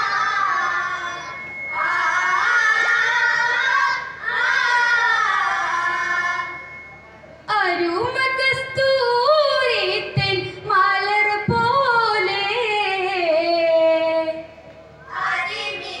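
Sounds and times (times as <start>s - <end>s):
boys singing: 0.0s - 6.6s.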